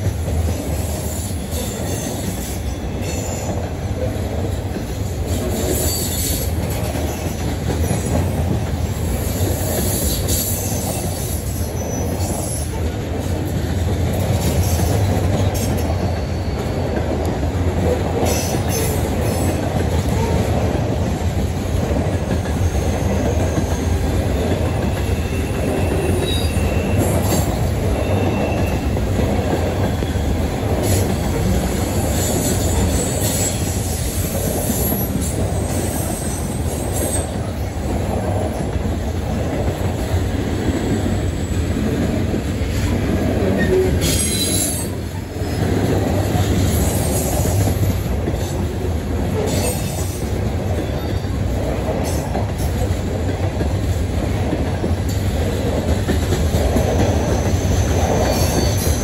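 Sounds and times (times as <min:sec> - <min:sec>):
train wheels rumbling on rail: 0:00.0 - 0:59.0
high-pitched wheel squeals: 0:24.7 - 0:29.0.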